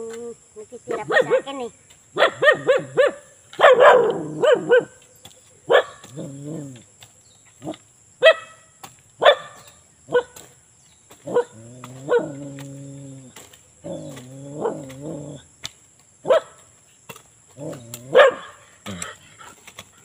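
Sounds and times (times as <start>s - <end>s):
dog barking: 0.9s - 1.5s, 2.2s - 5.0s, 5.7s - 6.3s, 7.6s - 8.6s, 9.2s - 10.4s, 11.3s - 12.4s, 16.2s - 16.6s, 18.0s - 18.6s
dog whining or growling: 6.1s - 6.8s, 11.3s - 15.4s, 17.6s - 19.2s.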